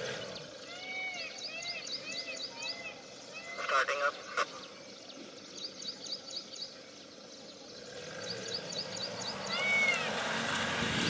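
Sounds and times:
small birds chirping: 0.0 - 10.7
vehicle engine rumble: 6.7 - 11.0.

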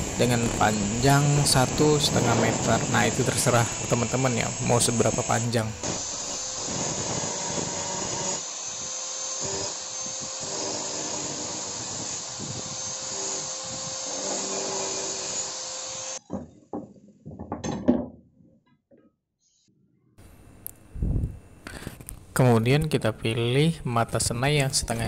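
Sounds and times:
angle grinder cutting steel: 0.0 - 16.2
steel pipes knocking and rattling: 16.2 - 18.2.

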